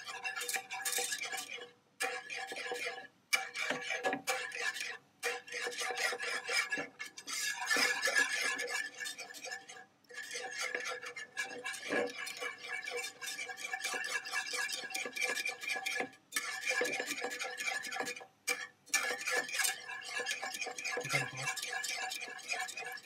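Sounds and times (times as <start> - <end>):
whisk scraping against pan: 0.0 - 23.0.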